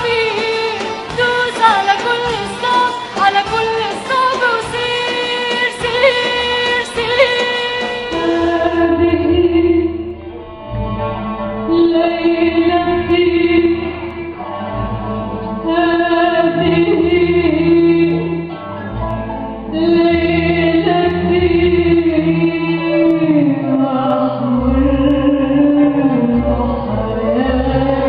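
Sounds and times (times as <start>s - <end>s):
low bass: 8.2s - 28.0s
person singing: 19.6s - 28.0s.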